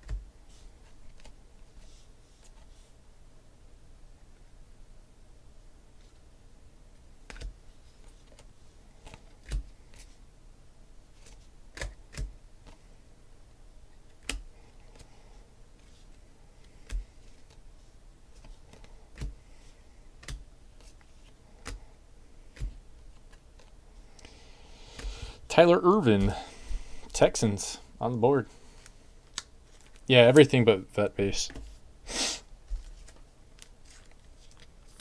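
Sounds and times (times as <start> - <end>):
trading cards clicking and snapping: 7.3 - 7.6, 8.2 - 10.1, 11.2 - 12.8, 14.1 - 15.1, 18.4 - 19.4, 20.2 - 21.0, 21.6 - 21.8.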